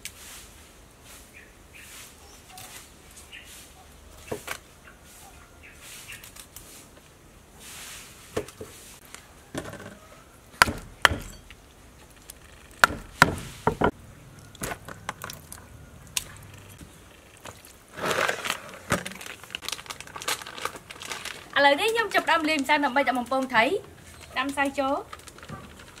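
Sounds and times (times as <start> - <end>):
knife chopping on wooden board: 10.6 - 11.3.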